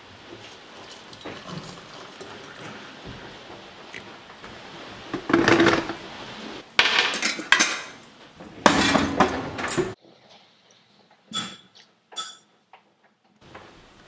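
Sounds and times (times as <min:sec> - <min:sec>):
cutlery rattling in drawer: 0:06.8 - 0:08.0, 0:08.6 - 0:10.0
kitchen drawer opening: 0:07.0 - 0:10.0
drawer shutting: 0:08.4 - 0:10.0.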